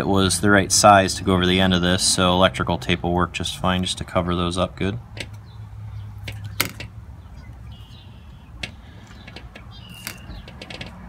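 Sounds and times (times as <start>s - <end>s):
handling clicks on wiring: 6.2s - 7.6s, 8.6s - 11.0s
high squeaks: 6.3s - 11.0s.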